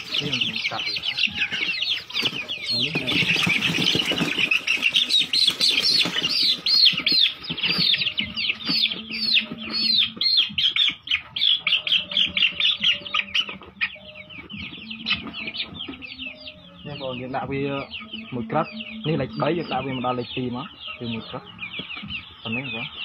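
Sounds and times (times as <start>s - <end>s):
chick peeping loudly: 0.0s - 23.0s.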